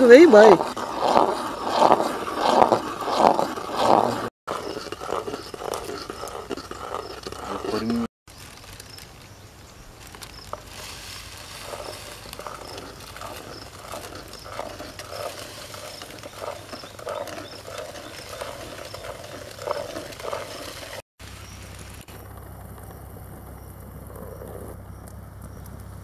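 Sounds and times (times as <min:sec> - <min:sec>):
spoon scraping steel pan: 0:00.0 - 0:08.1.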